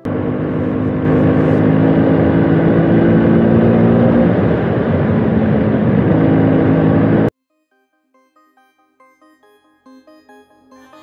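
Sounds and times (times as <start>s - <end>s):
scooter engine running: 0.0s - 7.3s.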